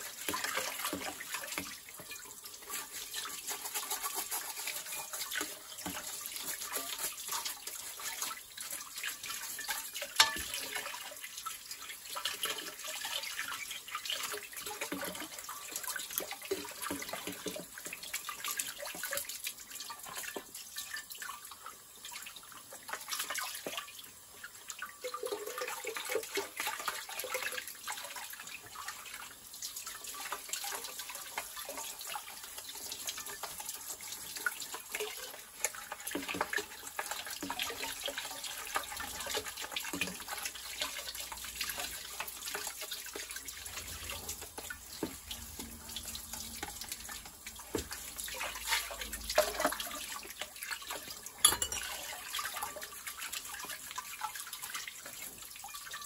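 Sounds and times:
brush scrubbing plastic: 0.0s - 10.7s, 30.6s - 50.2s
tap water splashing: 0.0s - 21.4s, 30.0s - 56.0s.

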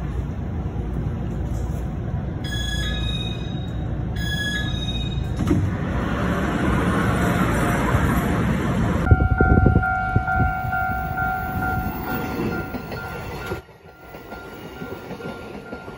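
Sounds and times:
low train rumble: 0.0s - 15.9s
train door chime: 2.4s - 5.5s, 9.1s - 15.9s.

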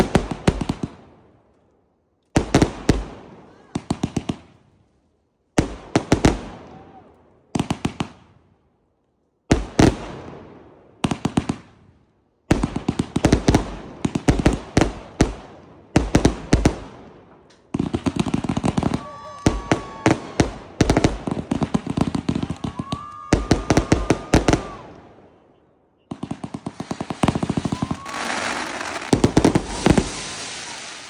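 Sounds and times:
firework bangs: 17.8s - 25.0s, 26.1s - 31.0s.

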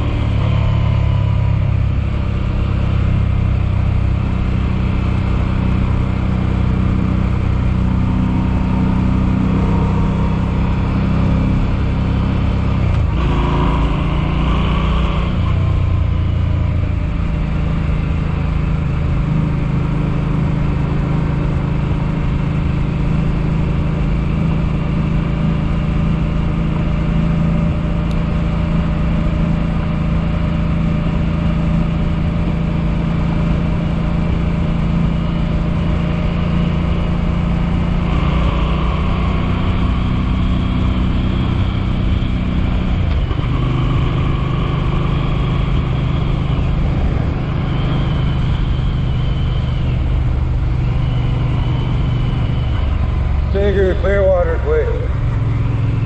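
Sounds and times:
engine running steadily: 0.0s - 56.0s.

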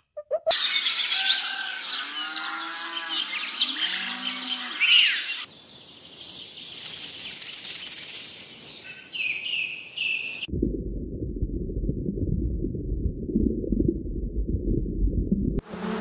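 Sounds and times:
birds chirping and twittering: 0.5s - 10.5s
snake hissing: 6.6s - 8.5s.

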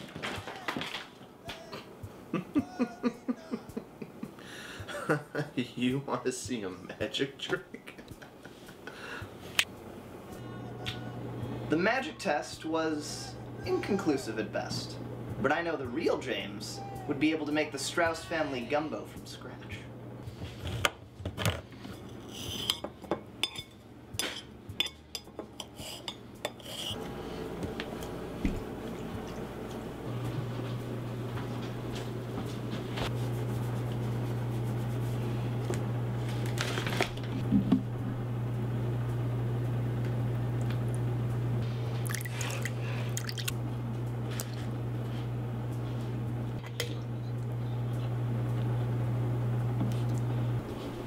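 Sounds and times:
dishes clinking: 22.1s - 27.0s
low hum: 27.0s - 51.0s.

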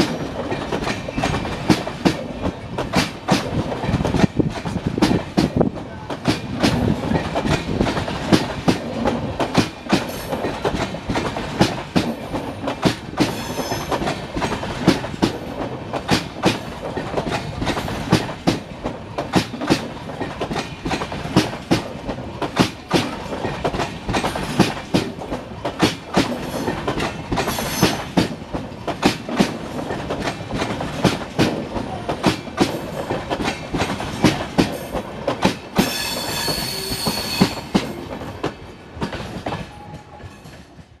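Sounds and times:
train wheels clattering over rail joints: 0.0s - 41.0s
train wheels squealing: 13.3s - 14.0s, 27.5s - 28.1s, 35.8s - 37.8s.

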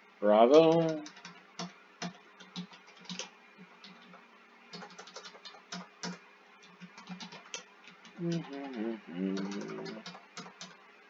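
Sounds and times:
keyboard keys clicking: 0.6s - 4.2s, 4.8s - 8.8s, 9.4s - 10.8s.

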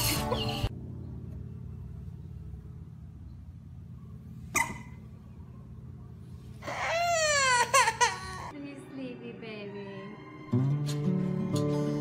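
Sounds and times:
low steady hum: 0.3s - 8.6s
toddler crying: 6.6s - 8.5s.

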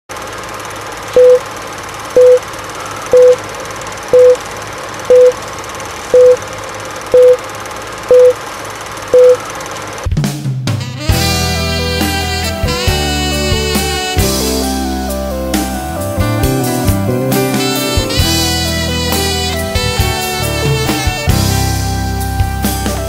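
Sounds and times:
countdown beeps: 1.2s - 1.4s, 2.2s - 2.4s, 3.1s - 3.4s, 4.2s - 4.4s, 5.1s - 5.4s, 6.1s - 6.4s, 7.1s - 7.4s, 8.1s - 8.4s, 9.2s - 9.4s.

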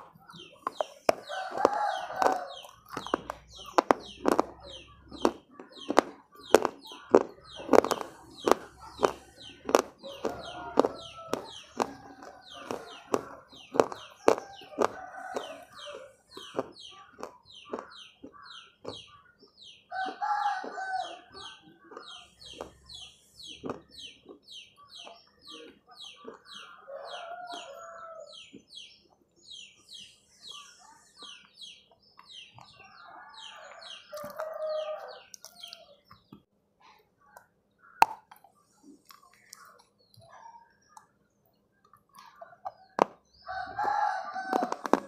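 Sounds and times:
mouth clicks: 0.0s - 19.0s, 35.2s - 35.9s
small bird chirping: 0.0s - 45.0s.

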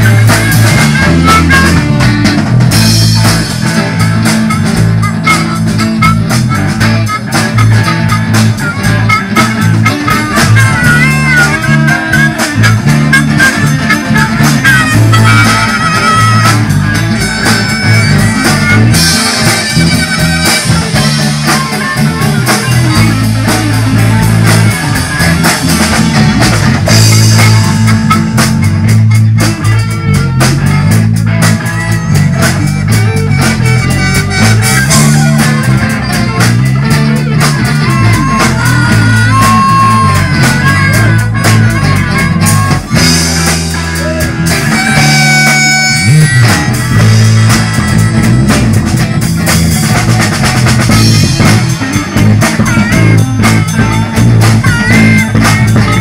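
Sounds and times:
bass line: 0.0s - 56.0s
distorted electric guitars: 0.0s - 56.0s
drum kit: 0.0s - 56.0s.

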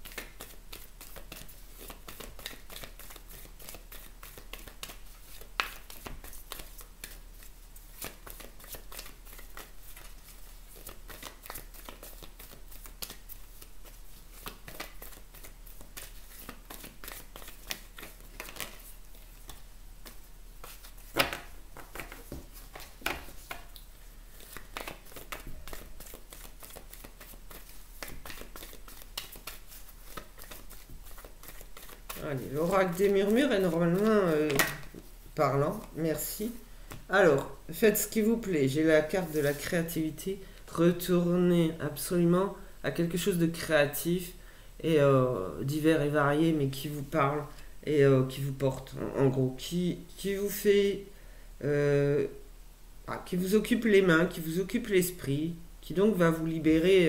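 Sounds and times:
cards shuffling: 0.0s - 35.1s.

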